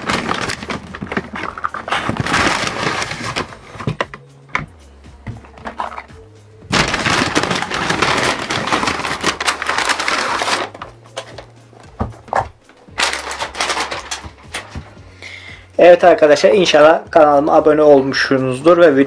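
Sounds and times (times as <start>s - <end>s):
paper bag rustling and crinkling: 0.0s - 4.2s, 6.7s - 11.5s, 12.2s - 14.9s
quiet background music: 0.0s - 19.0s.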